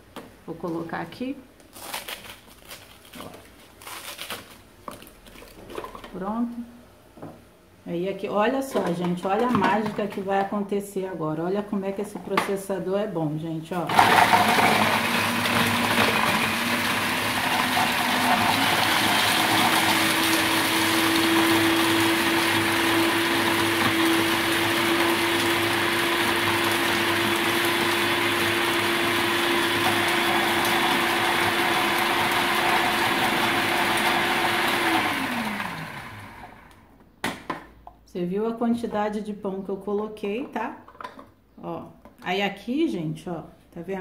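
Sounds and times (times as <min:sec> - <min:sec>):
food processor grinding bread: 0:13.9 - 0:36.8.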